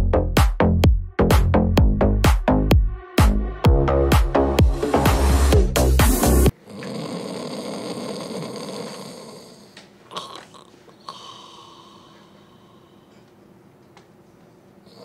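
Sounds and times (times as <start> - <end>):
man snoring: 6.5 - 13.0.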